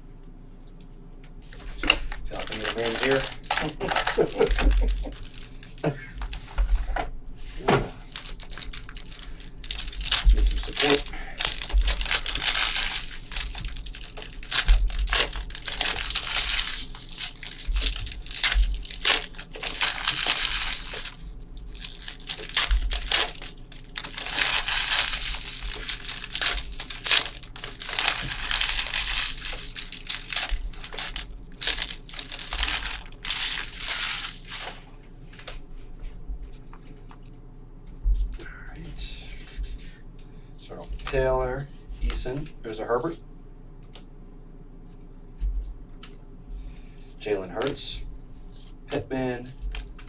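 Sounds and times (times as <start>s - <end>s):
plastic wrappers crinkling: 1.6s - 6.5s, 8.0s - 35.6s
packaging tearing: 2.3s - 6.0s, 8.1s - 34.8s.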